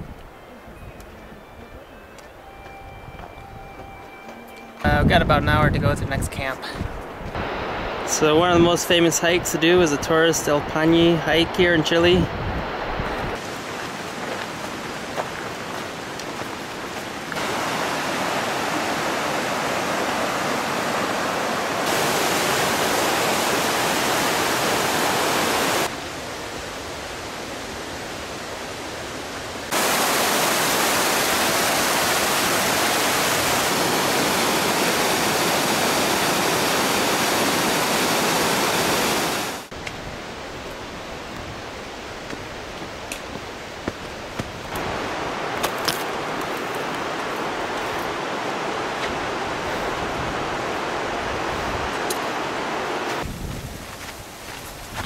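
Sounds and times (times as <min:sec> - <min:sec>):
whitewater river rushing: 0:12.7 - 0:26.8, 0:27.6 - 0:39.7, 0:44.8 - 0:53.2.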